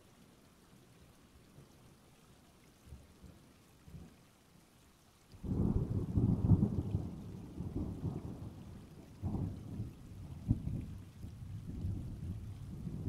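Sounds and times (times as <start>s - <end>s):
thunder rumbling: 5.5s - 13.0s.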